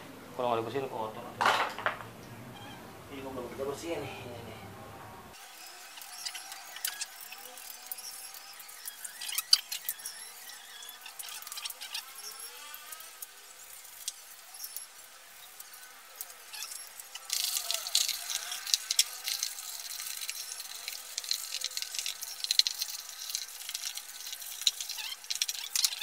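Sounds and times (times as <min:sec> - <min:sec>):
scrubbing wet plastic: 0:05.4 - 0:26.0.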